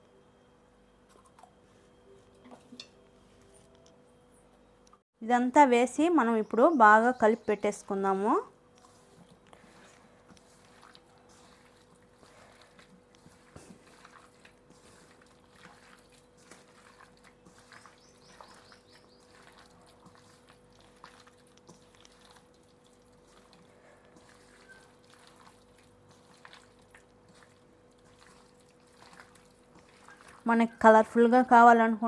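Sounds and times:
hand squelching raw chicken: 8.8s - 30.8s.

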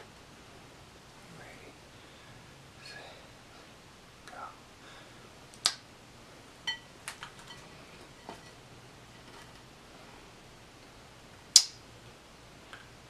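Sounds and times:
finger snapping: 5.5s - 5.8s, 11.6s - 11.8s.

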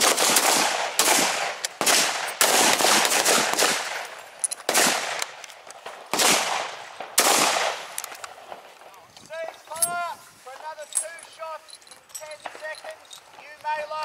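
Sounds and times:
rifle shots echoing: 0.0s - 8.8s.

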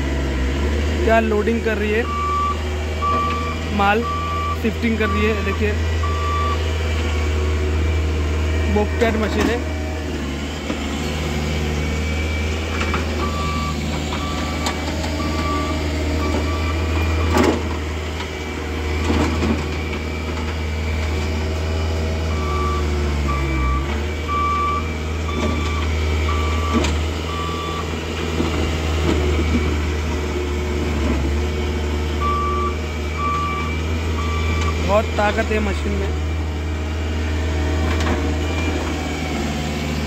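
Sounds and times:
loader engine running: 0.0s - 40.0s
reversing alarm beeping: 2.0s - 6.7s, 11.7s - 17.4s, 22.3s - 27.9s, 32.2s - 35.8s, 38.4s - 39.0s.

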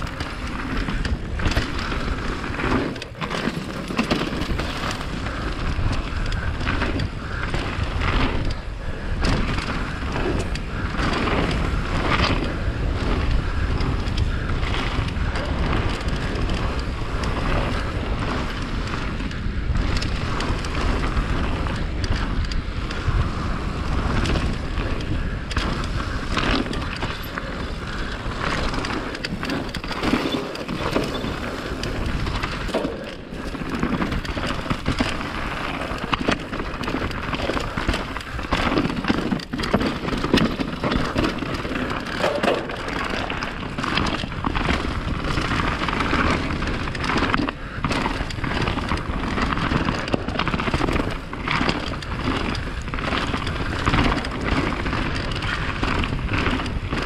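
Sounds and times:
tyres crunching over stones: 0.0s - 5.2s, 26.8s - 46.3s
bike rattling over bumps: 0.0s - 57.0s.

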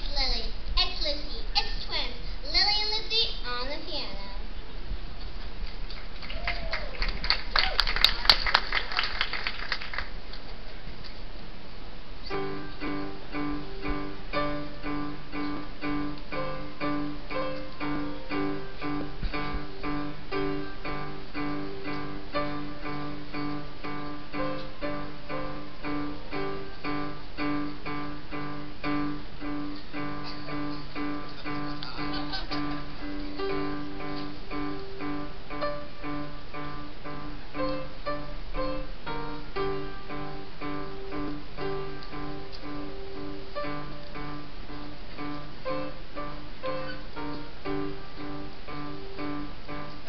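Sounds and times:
audience clapping: 5.6s - 10.6s
piano duet: 11.9s - 50.0s.

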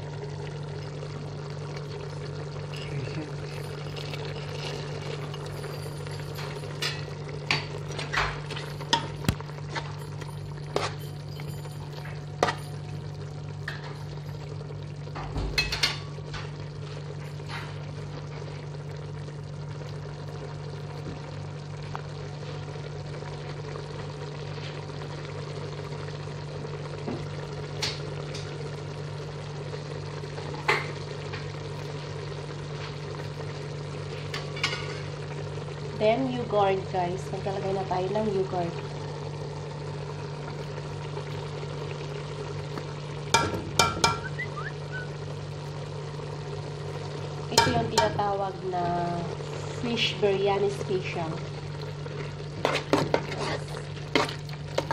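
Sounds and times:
food bubbling and sizzling in pot: 0.0s - 54.9s
utensil knocking on pot: 43.3s - 44.4s, 47.6s - 48.2s.

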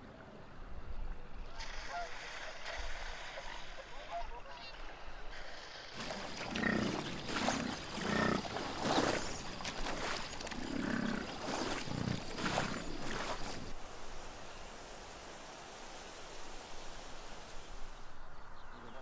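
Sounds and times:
large animal growling: 6.0s - 9.4s, 10.5s - 12.7s.

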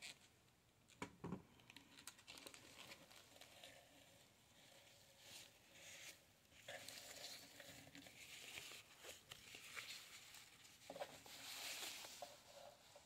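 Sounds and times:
tissue paper rustling: 4.6s - 13.0s.

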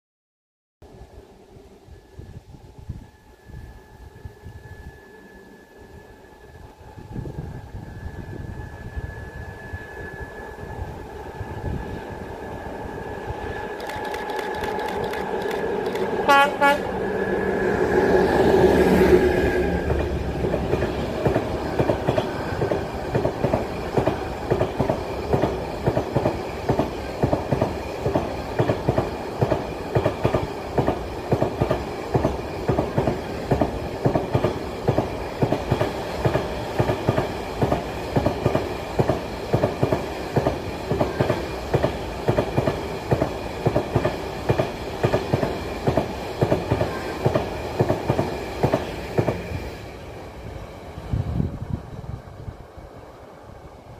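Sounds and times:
diesel locomotive engine passing: 0.8s - 53.9s
train wheels clickety-clack: 13.7s - 16.8s, 19.8s - 49.8s.

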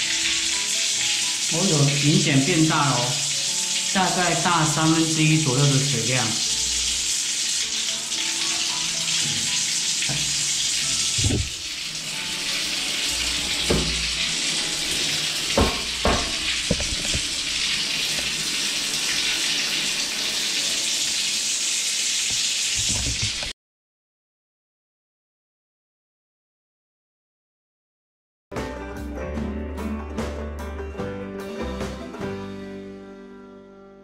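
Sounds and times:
shower water on tiled floor: 0.0s - 23.6s.

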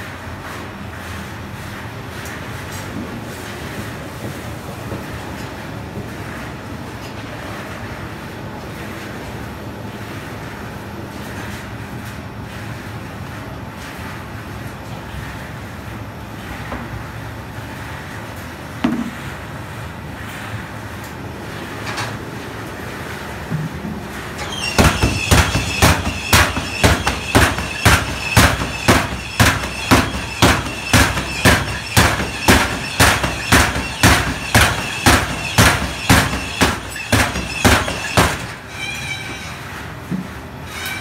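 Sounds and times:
machine arm regular beat: 24.5s - 38.5s.

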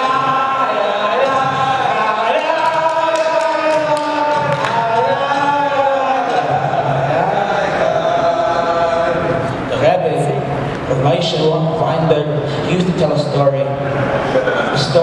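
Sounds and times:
chant-like singing: 0.0s - 9.7s.

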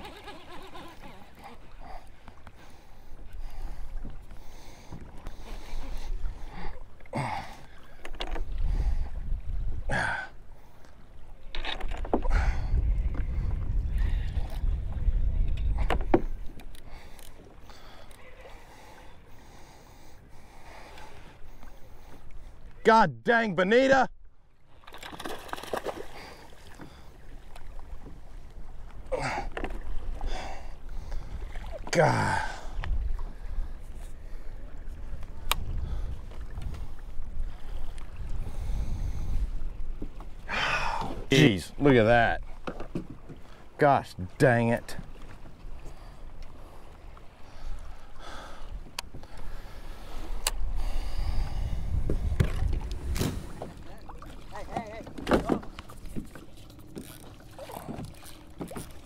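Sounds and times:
water sloshing against hull: 0.0s - 23.0s, 23.7s - 59.0s
wind buffeting microphone: 8.4s - 10.2s, 12.1s - 17.0s, 32.5s - 43.3s, 47.3s - 56.4s.

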